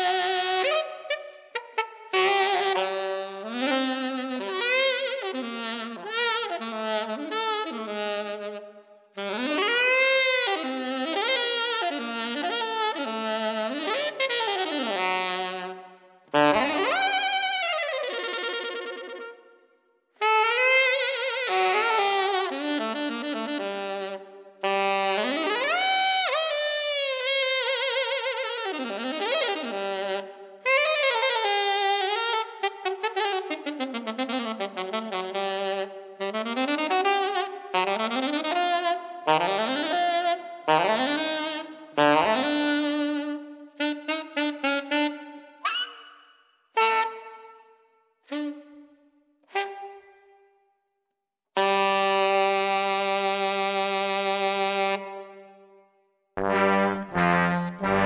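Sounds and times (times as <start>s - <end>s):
saxophone wailing melody: 0.0s - 19.4s, 20.2s - 46.1s, 46.7s - 47.6s, 48.2s - 50.1s, 51.6s - 55.7s, 56.4s - 58.0s
saxophone wavering note: 56.4s - 58.0s.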